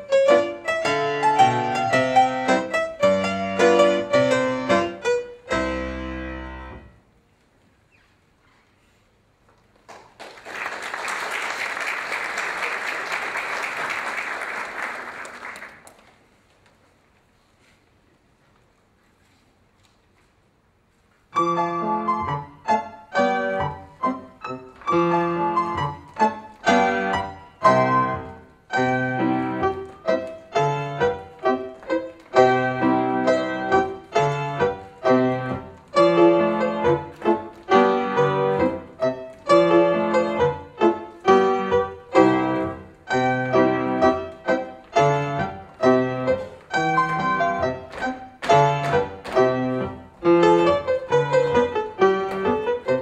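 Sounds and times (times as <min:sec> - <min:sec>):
solo piano chords: 0:00.0 - 0:07.1, 0:21.3 - 0:53.0.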